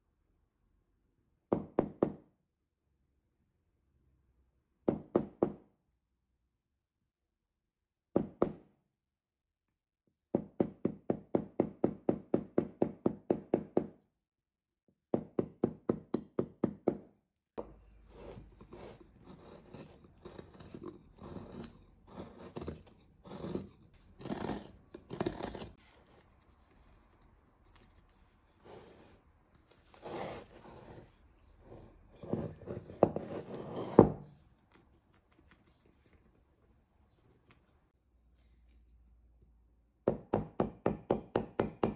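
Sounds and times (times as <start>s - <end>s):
gouge scraping wood chips: 17.9s - 34.0s
chisel striking wood: 40.1s - 41.9s.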